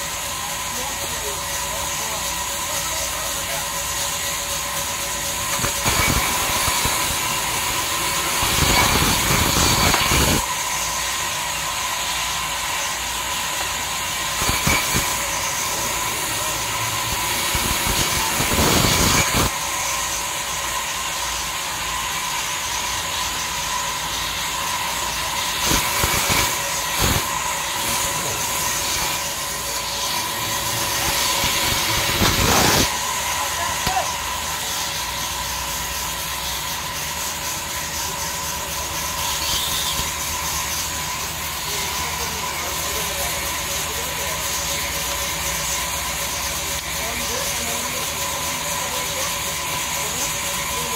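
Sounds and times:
band saw whining: 0:00.0 - 0:50.9
saw blade cutting wood: 0:00.0 - 0:50.9.

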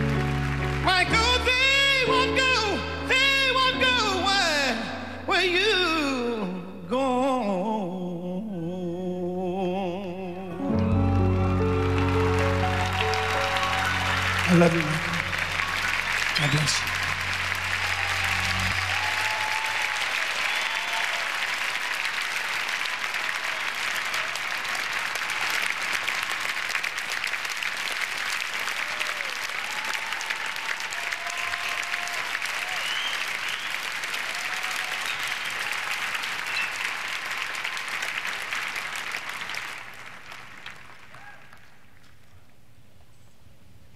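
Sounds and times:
crowd applauding: 0:00.0 - 0:02.9, 0:10.8 - 0:42.2.

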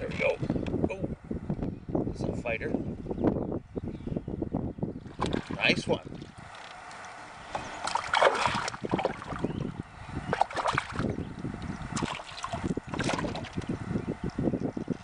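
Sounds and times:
light water splashes: 0:05.0 - 0:09.4, 0:10.3 - 0:11.1, 0:11.8 - 0:13.7.

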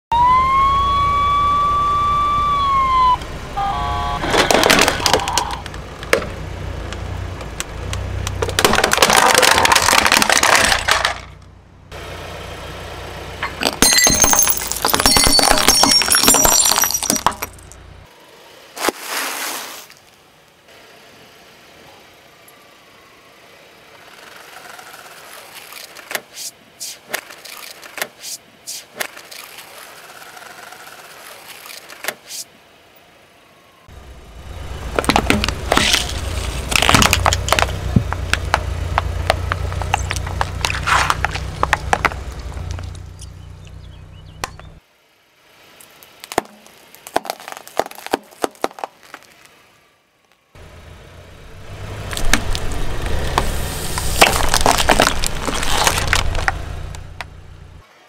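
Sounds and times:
car engine running low: 0:00.2 - 0:18.8, 0:20.1 - 0:26.1, 0:29.4 - 0:47.6, 0:50.6 - 0:58.0
car tyre crushing objects: 0:04.1 - 0:11.6, 0:13.4 - 0:17.8, 0:34.8 - 0:44.8, 0:45.8 - 0:50.5, 0:51.7 - 0:57.8.

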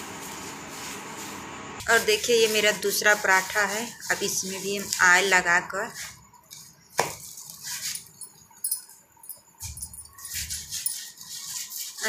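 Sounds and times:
bangles jingling: 0:07.2 - 0:12.0.

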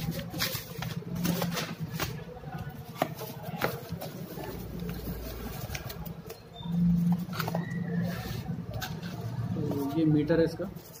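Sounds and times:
cardboard packaging rustling: 0:00.0 - 0:06.4.

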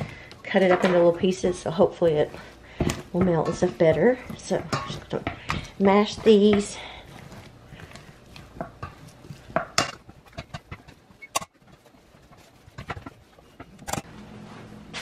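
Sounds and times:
potato masher mashing potatoes: 0:00.0 - 0:14.1
masher clinking against pot: 0:03.2 - 0:05.7.

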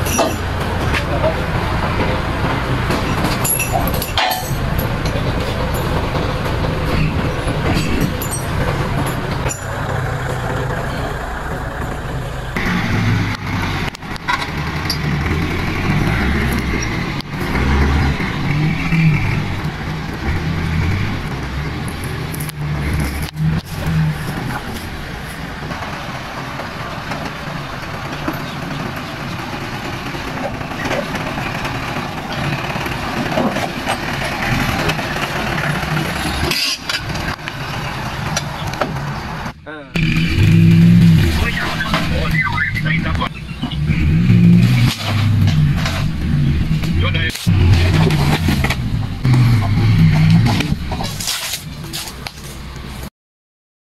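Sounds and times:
pickup truck engine running: 0:00.0 - 0:53.0
people's voices: 0:41.0 - 0:44.2, 0:46.8 - 0:48.0.

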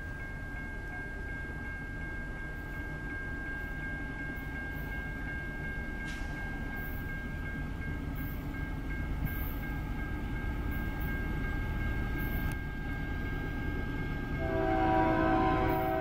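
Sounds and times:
locomotive air horn: 0:14.4 - 0:16.0.

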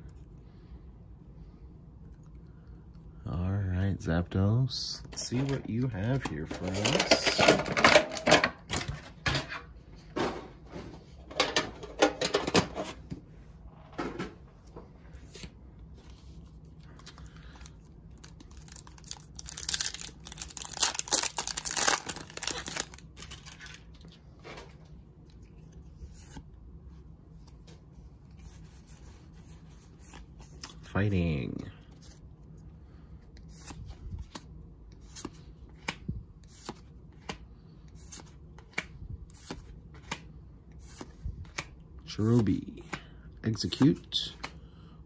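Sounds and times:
foil wrapper crinkling and tearing: 0:18.2 - 0:24.0.

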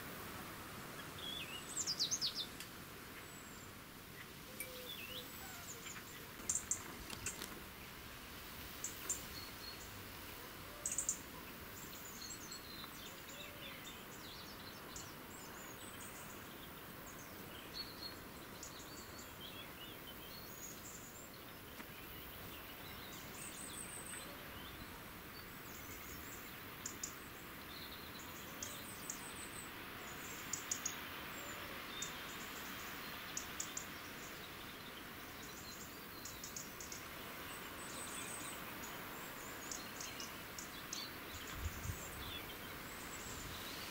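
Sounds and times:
outdoor background hiss: 0:00.0 - 0:43.9
small bird chirps: 0:04.5 - 0:07.5.

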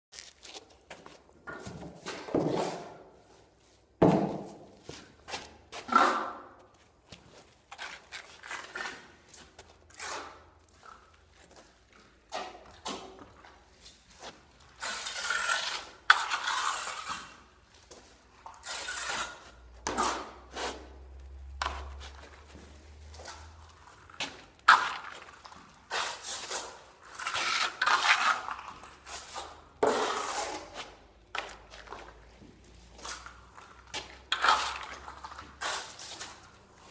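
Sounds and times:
footsteps on concrete floor: 0:00.1 - 0:14.8, 0:17.2 - 0:26.9, 0:28.6 - 0:36.9
steel trowel scraping plaster: 0:02.0 - 0:03.2, 0:05.8 - 0:06.6, 0:07.7 - 0:11.1, 0:12.4 - 0:22.6, 0:23.2 - 0:32.0, 0:33.0 - 0:36.9.

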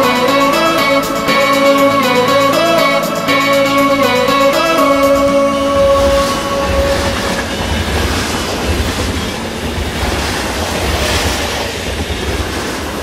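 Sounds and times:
train wheels rumbling on rails: 0:04.9 - 0:13.0.

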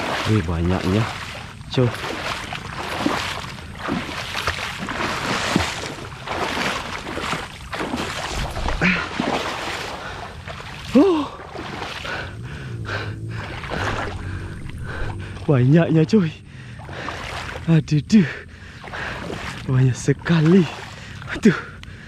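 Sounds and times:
shallow water splashing: 0:00.0 - 0:21.8
person exclaiming: 0:10.9 - 0:11.4.

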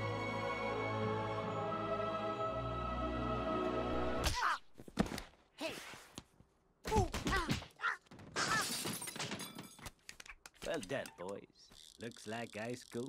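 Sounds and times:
orchestral chord: 0:00.0 - 0:04.2
ratcheting clicks: 0:10.9 - 0:13.0.

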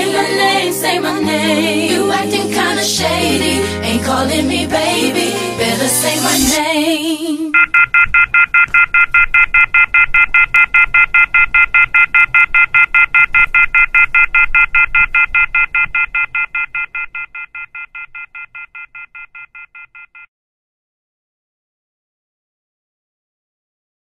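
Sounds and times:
off-hook warning beeping: 0:07.6 - 0:20.3.

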